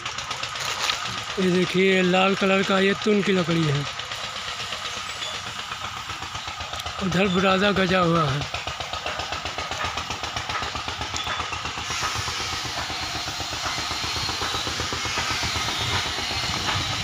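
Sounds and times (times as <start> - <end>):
engine chugging: 0.0 - 17.0.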